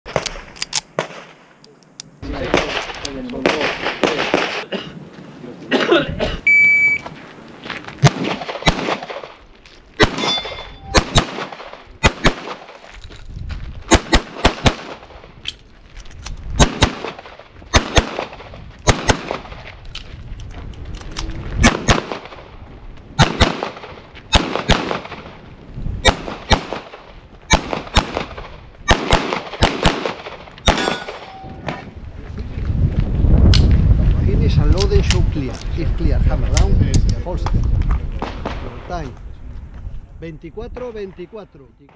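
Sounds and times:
pistol shots: 2.4 - 4.7, 8.0 - 9.4, 10.0 - 12.8, 13.9 - 15.1, 16.6 - 19.5, 21.6 - 22.4, 23.2 - 25.3, 26.0 - 31.8.

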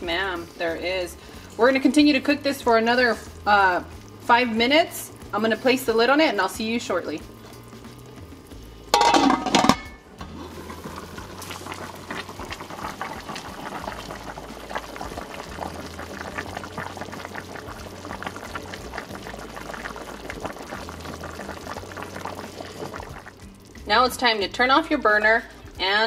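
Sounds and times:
soup bubbling and popping: 1.2 - 26.0
pot lid clattering: 8.9 - 10.8.

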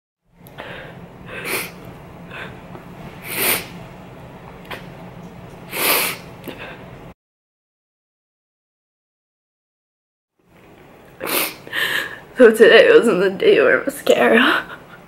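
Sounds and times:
person breathing: 0.5 - 2.6, 5.7 - 6.9, 11.2 - 12.3
person sniffling: 1.3 - 2.6, 5.7 - 6.8.

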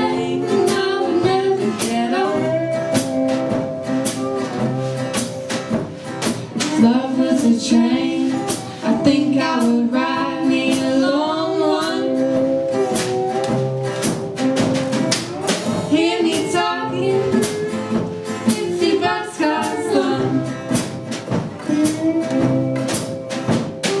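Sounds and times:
lead vocal singing: 0.0 - 5.0, 15.4 - 20.9
acoustic band playing: 0.0 - 24.0.

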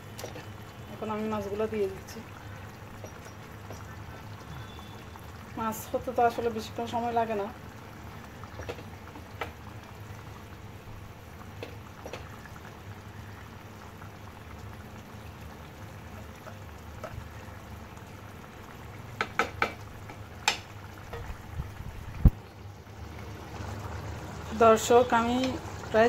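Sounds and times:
curry sauce boiling in a pot: 0.0 - 26.0
wooden spatula knocking on pot: 19.2 - 21.4.

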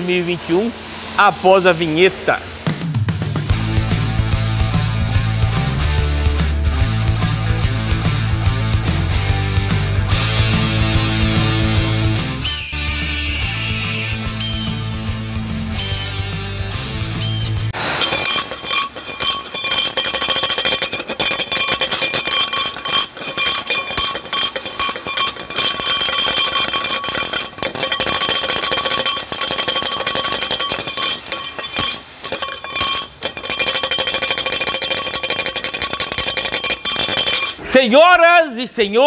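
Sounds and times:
shock absorber clanking and rattling: 18.0 - 37.6.

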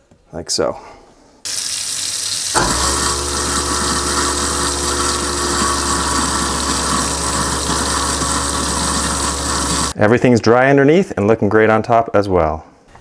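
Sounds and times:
tap water running into sink: 1.5 - 10.0
garbage disposal motor humming: 1.8 - 10.0.

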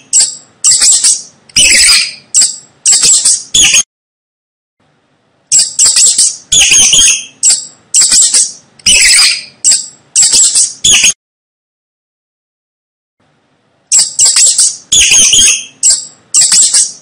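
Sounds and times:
mouse squeaking: 0.0 - 3.8, 5.5 - 11.2, 13.9 - 17.0.

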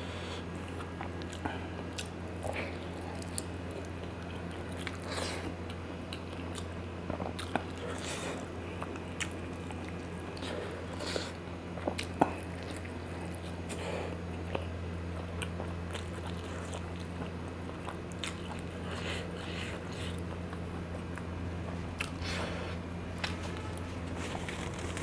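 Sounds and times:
person chewing noodles: 0.0 - 25.0
steady low hum: 0.0 - 25.0.

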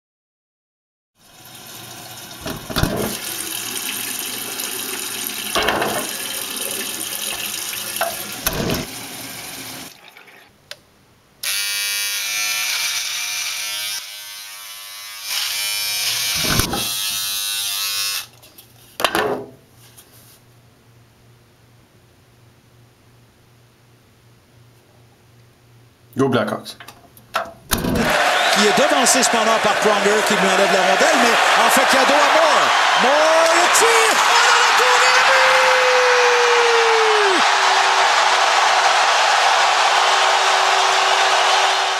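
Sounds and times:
tap water running into sink: 1.4 - 10.5
electric shaver buzzing: 11.4 - 18.3.

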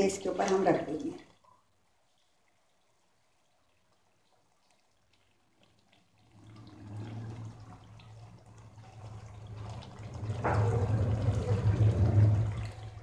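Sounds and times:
curry sizzling and bubbling: 0.0 - 13.0
low steady hum: 6.2 - 13.0.

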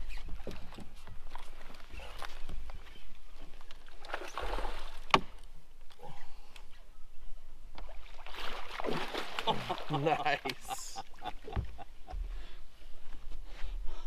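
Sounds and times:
water splashing and sloshing: 0.0 - 6.5, 7.7 - 13.6.

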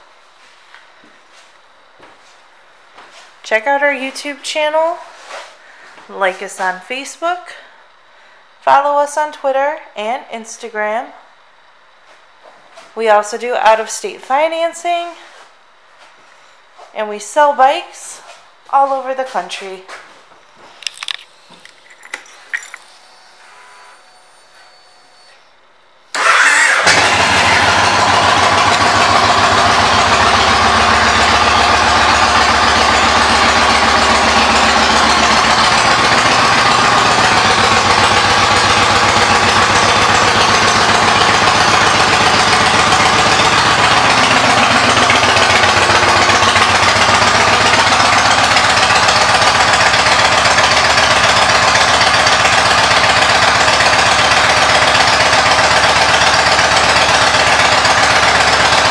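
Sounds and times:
motorcycle engine starting and idling: 20.8 - 25.5, 26.1 - 58.9.

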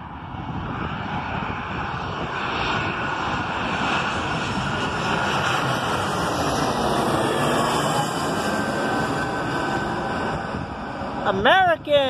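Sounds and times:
jet airliner engine rush: 0.0 - 12.0.

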